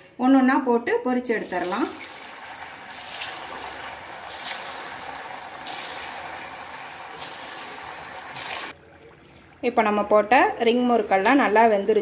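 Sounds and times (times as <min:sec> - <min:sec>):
dough deep-frying in oil: 0:01.3 - 0:12.0
oil crackling: 0:01.5 - 0:10.3.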